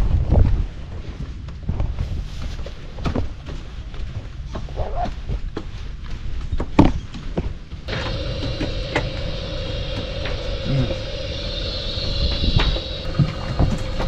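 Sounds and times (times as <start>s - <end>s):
motor humming with whine: 7.9s - 14.0s.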